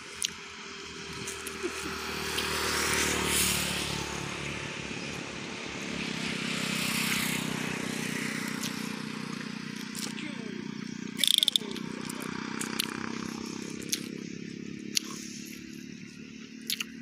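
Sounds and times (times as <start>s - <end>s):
vehicles passing on road: 0.0s - 17.0s.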